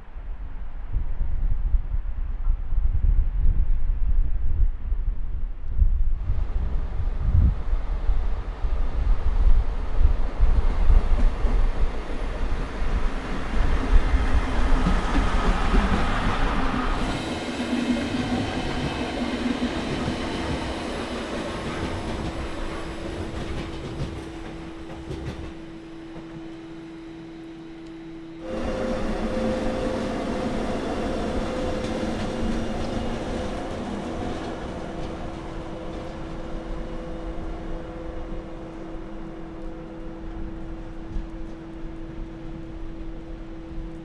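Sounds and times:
train hum: 0:04.6 - 0:44.0
train rolling past: 0:06.4 - 0:44.0
higher hum: 0:11.4 - 0:44.0.

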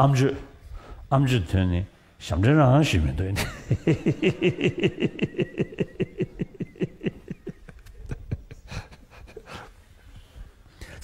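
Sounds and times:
man laughing heartily: 0:03.4 - 0:09.8.

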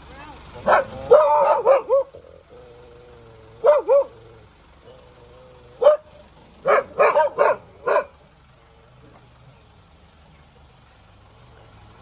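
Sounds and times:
dog barking: 0:00.6 - 0:02.2, 0:03.6 - 0:04.2, 0:05.8 - 0:08.2.

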